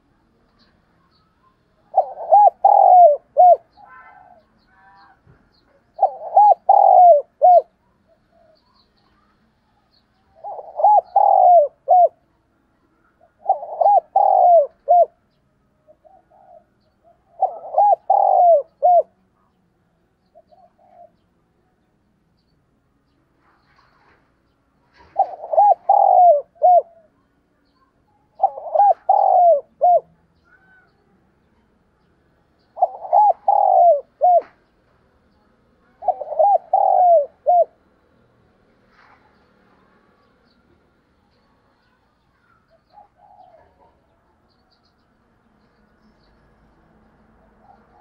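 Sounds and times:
dove cooing: 0:01.8 - 0:08.8, 0:10.3 - 0:12.2, 0:13.2 - 0:19.2, 0:20.3 - 0:21.2, 0:24.9 - 0:27.2, 0:28.3 - 0:30.9, 0:32.6 - 0:34.7, 0:35.8 - 0:37.9, 0:42.4 - 0:44.2, 0:47.4 - 0:48.0.

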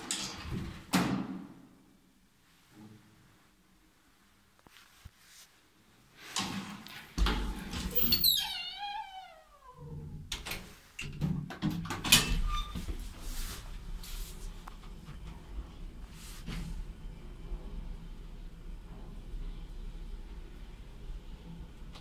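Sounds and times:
lift running hum: 0:13.6 - 0:22.0.

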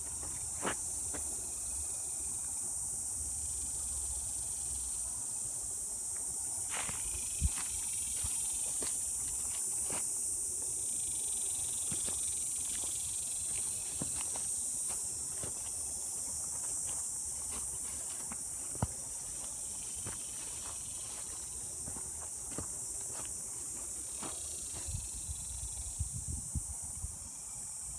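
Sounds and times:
insects chorus: 0:00.0 - 0:27.9
footsteps through dry grass: 0:06.7 - 0:10.4, 0:11.4 - 0:25.5.

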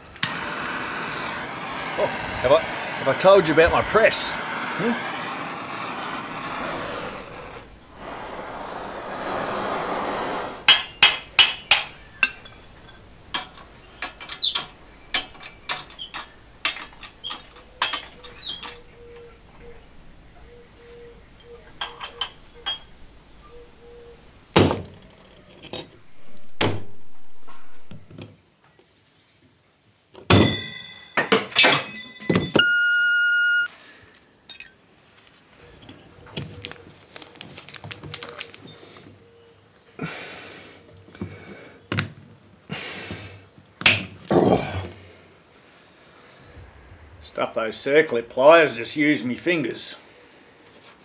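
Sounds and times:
metal parts clinking on wood: 0:10.7 - 0:18.8, 0:21.8 - 0:22.9
short beep: 0:32.6 - 0:33.7
plastic bag crinkling: 0:37.1 - 0:38.7.

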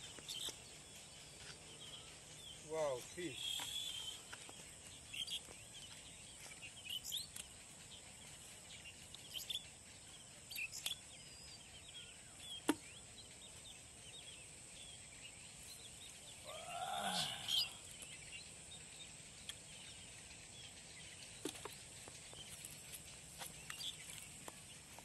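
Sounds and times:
steady high hiss: 0:00.0 - 0:05.3
small bird chirps: 0:00.0 - 0:25.0.

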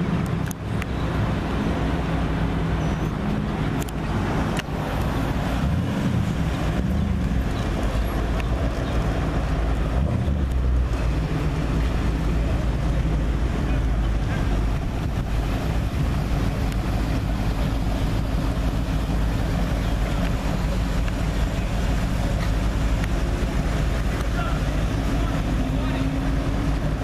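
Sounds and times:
vehicle engines rumbling past: 0:00.0 - 0:27.0
wind noise on microphone: 0:12.6 - 0:24.0.

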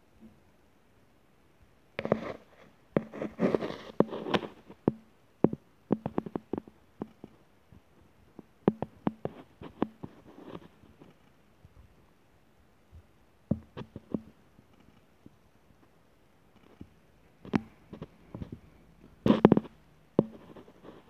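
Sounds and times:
faint low hum: 0:00.0 - 0:21.0
rustling: 0:02.0 - 0:05.0, 0:15.8 - 0:21.0
handling clicks and taps: 0:16.6 - 0:20.9.

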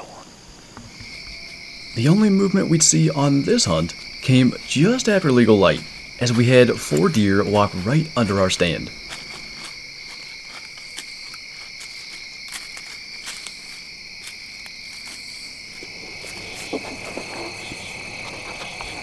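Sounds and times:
crickets and insects chirring: 0:00.0 - 0:19.0
rustles and knocks: 0:14.6 - 0:19.0.

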